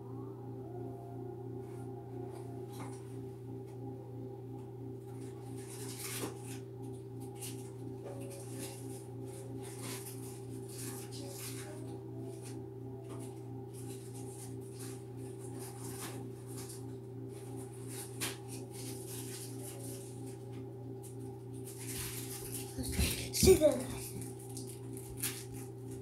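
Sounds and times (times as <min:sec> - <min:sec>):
faint pulsing tone: 0:00.0 - 0:05.7
low hum: 0:00.0 - 0:26.0.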